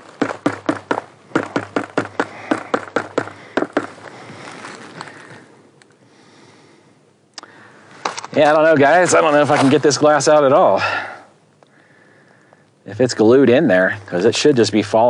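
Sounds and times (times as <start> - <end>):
faint handling sounds: 2.2 - 6.1, 7.8 - 10.2.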